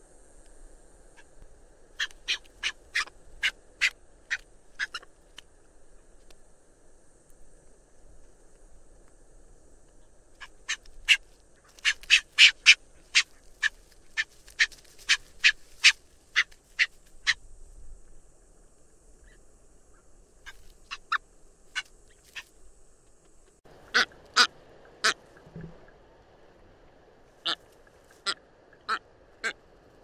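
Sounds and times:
background hiss: 0.0 - 30.0
seabird calling: 2.0 - 5.1, 10.4 - 11.2, 11.8 - 17.4, 23.7 - 25.2.

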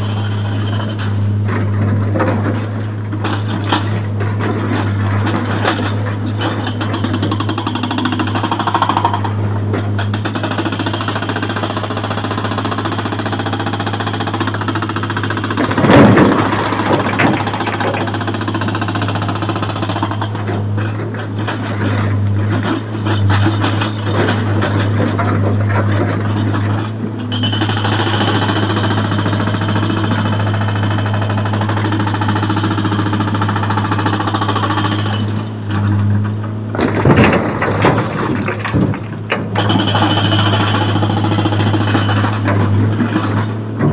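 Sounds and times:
excavator diesel engine droning: 0.0 - 43.9
rock crashing: 15.6 - 18.6, 36.7 - 39.6.

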